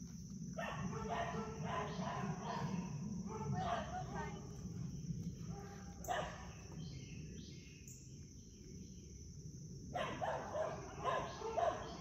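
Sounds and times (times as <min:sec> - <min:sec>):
dog barking: 0:00.6 - 0:04.3, 0:05.5 - 0:06.5, 0:10.0 - 0:12.0.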